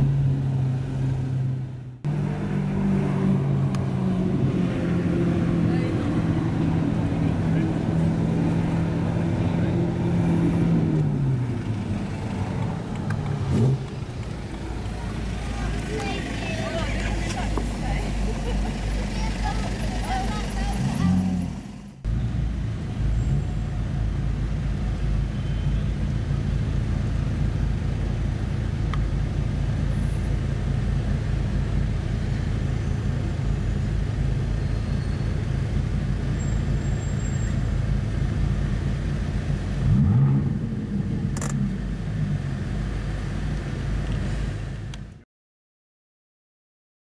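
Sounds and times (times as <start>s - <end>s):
car engine idling: 11.2s - 44.2s.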